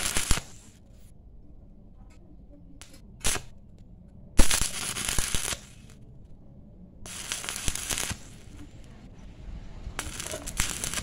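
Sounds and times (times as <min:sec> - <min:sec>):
welding arc crackling: 0:00.0 - 0:00.8, 0:02.8 - 0:03.6, 0:04.4 - 0:06.0, 0:07.1 - 0:09.0, 0:09.8 - 0:11.0.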